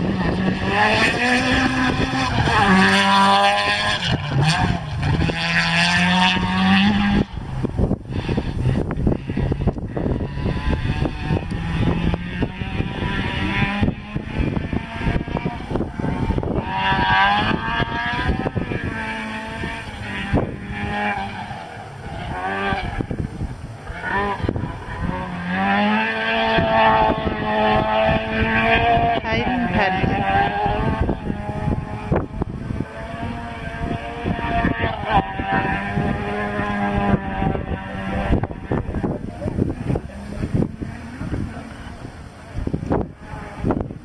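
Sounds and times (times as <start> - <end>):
rally car engine at high revs: 0.0 - 44.0.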